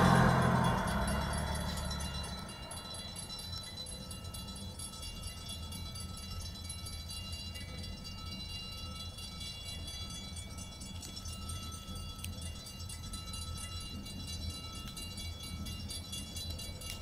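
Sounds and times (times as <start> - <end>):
constant low rumble: 0.0 - 17.0
crossing bell ringing: 0.0 - 17.0.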